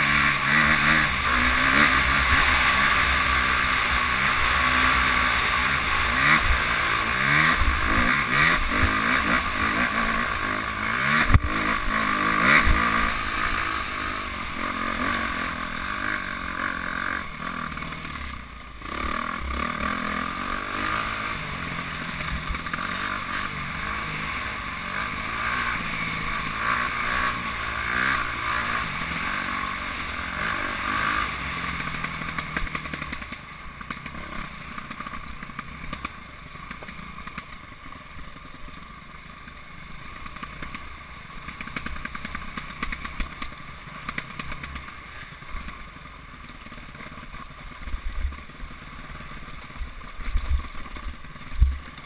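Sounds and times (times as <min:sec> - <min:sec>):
dirt bike engine revving: 0:00.0 - 0:37.6.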